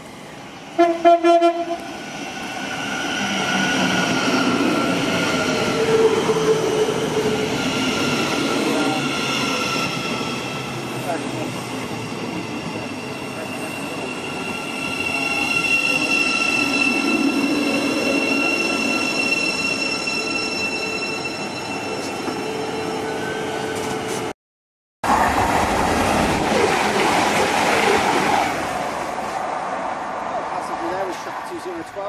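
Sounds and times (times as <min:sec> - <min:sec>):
diesel train passing at speed: 0:00.0 - 0:24.3, 0:25.0 - 0:32.0
electric train whining: 0:00.0 - 0:24.3.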